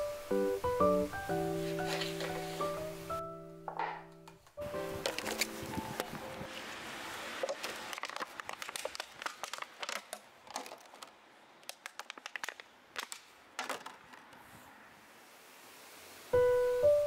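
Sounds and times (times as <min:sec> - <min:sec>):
plastic waste crinkling: 0:01.7 - 0:02.7, 0:04.9 - 0:14.5.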